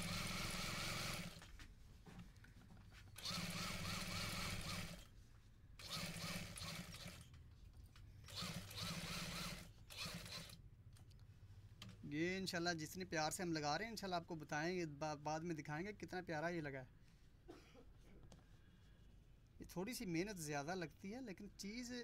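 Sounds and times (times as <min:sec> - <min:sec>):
sewing machine running: 0:00.0 - 0:01.4, 0:03.2 - 0:05.1, 0:05.8 - 0:07.3, 0:08.3 - 0:10.6.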